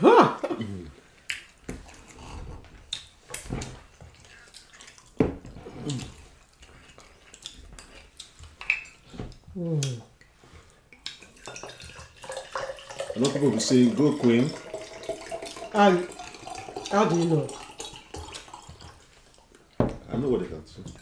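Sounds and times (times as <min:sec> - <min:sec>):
wet chewing and lip smacks: 0:01.2 - 0:02.2, 0:02.8 - 0:05.2, 0:05.8 - 0:11.6
person humming: 0:09.5 - 0:10.1.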